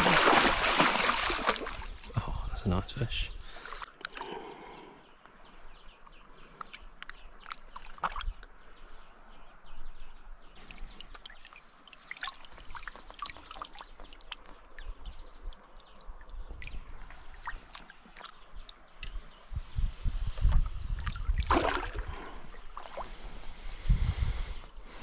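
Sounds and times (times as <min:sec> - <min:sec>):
river flowing: 0:00.0 - 0:02.2
water splashing and dripping: 0:00.0 - 0:02.2, 0:06.6 - 0:08.6, 0:10.6 - 0:19.2, 0:20.5 - 0:23.1.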